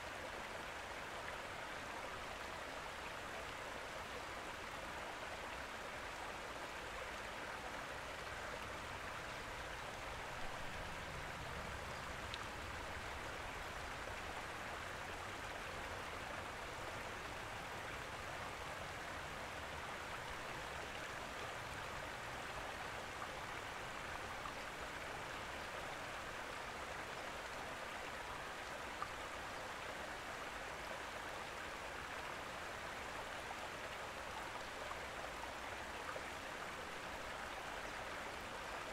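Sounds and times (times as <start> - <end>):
faint ticks: 12.0 - 12.6, 28.6 - 29.2.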